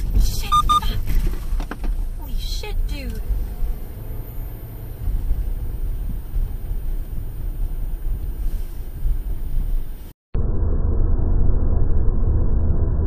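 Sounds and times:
car road rumble on wet street: 0:00.0 - 0:10.2
truck cab road rumble: 0:00.0 - 0:10.2.

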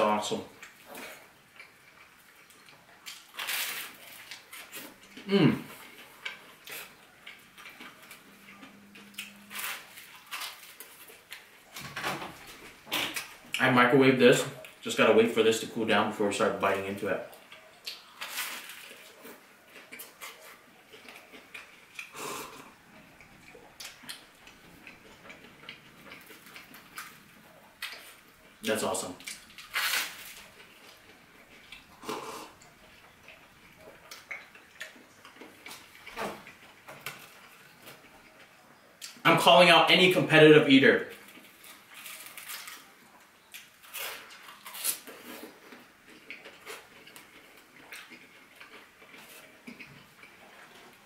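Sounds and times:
mouth clicks and smacks chewing: 0:17.3 - 0:28.6, 0:29.2 - 0:39.2, 0:43.4 - 0:51.0.

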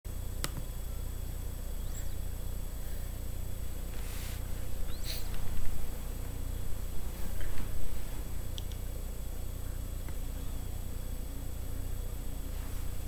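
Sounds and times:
low hum with hiss: 0:00.1 - 0:13.0
click: 0:00.4 - 0:00.6, 0:08.5 - 0:08.8
faint high chirps: 0:00.9 - 0:03.1, 0:04.6 - 0:05.5.

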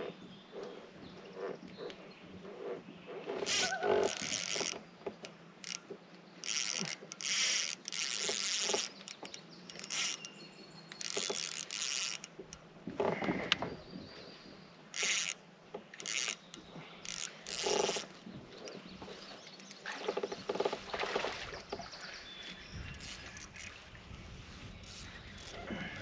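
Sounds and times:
fishing reel being cranked: 0:02.5 - 0:04.8, 0:05.6 - 0:12.6, 0:14.9 - 0:15.4, 0:16.0 - 0:18.1, 0:22.9 - 0:23.8, 0:24.8 - 0:26.0.

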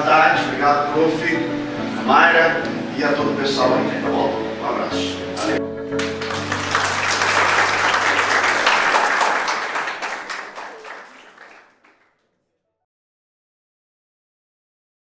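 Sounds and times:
group applauding: 0:06.0 - 0:12.2.

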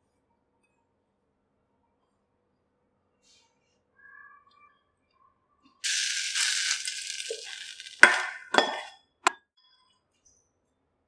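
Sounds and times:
food scraped from a pan hissing: 0:05.8 - 0:08.9.

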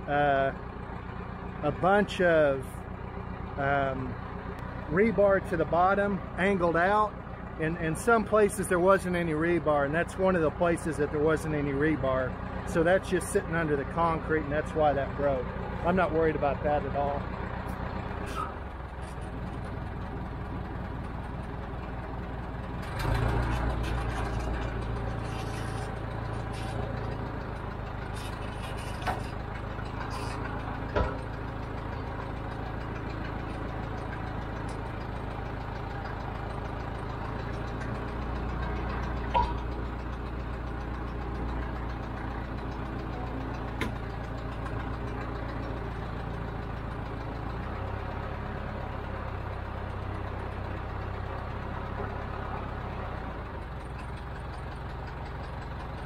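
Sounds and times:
crane engine running: 0:00.0 - 0:56.0
sharp clicks and knocks: 0:28.1 - 0:31.3, 0:37.4 - 0:40.2, 0:43.6 - 0:44.8.

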